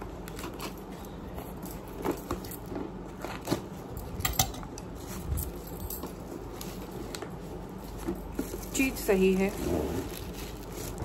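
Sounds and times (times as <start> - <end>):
plastic wrapping rustling: 4.9 - 11.0.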